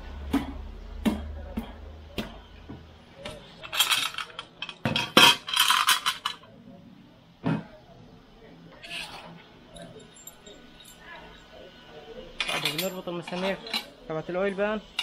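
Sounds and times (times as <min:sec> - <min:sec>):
metal clinks and knocks: 0:08.9 - 0:11.5.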